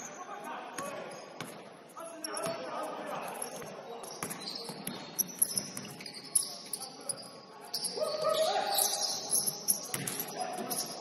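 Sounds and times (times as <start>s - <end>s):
sneakers squeaking on gym floor: 0.0s - 11.0s
basketball bouncing: 4.2s - 5.9s.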